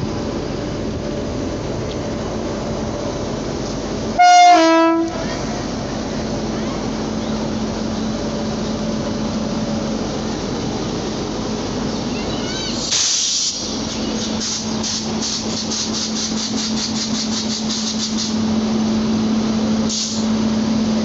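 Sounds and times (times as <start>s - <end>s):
train rumbling slowly: 0.0s - 21.0s
two-tone train horn blast: 4.2s - 5.3s
loud air hiss: 12.4s - 18.7s, 19.8s - 20.5s.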